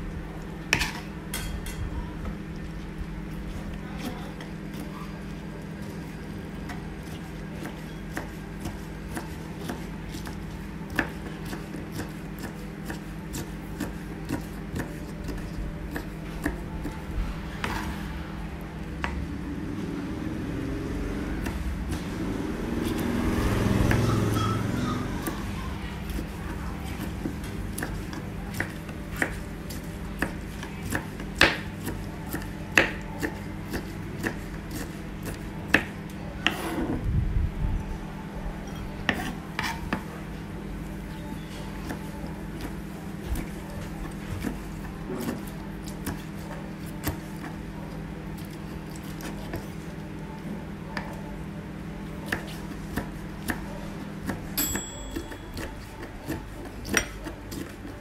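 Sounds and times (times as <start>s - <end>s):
steady low hum: 0.0s - 58.0s
knife chopping on wooden board: 30.2s - 36.7s.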